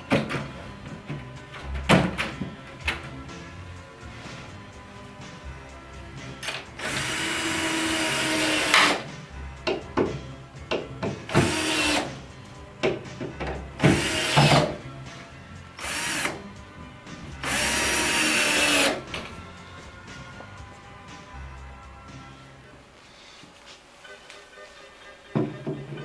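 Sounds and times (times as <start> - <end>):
cordless drill driving screws: 6.8 - 9.0, 11.3 - 12.1, 13.8 - 14.8, 15.8 - 16.4, 17.4 - 19.0.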